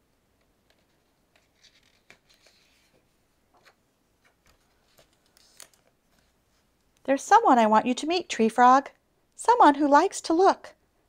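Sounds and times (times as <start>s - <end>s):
book page turning: 0.6s - 6.4s.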